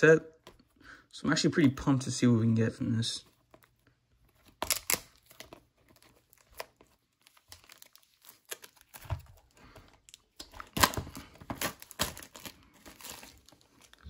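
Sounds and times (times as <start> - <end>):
plastic wrap crinkling: 3.2 - 14.0.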